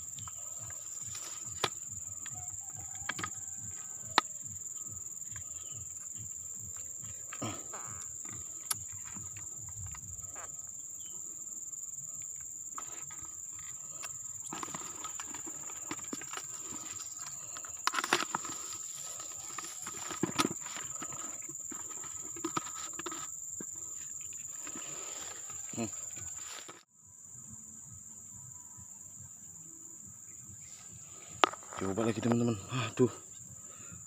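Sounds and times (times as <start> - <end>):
insects buzzing: 0.0 - 34.0
rustling leaves: 12.8 - 26.8.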